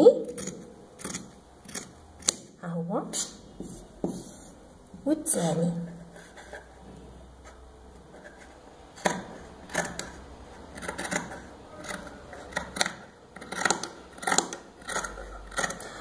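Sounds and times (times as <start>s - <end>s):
scissors snipping fabric: 10.8s - 15.8s.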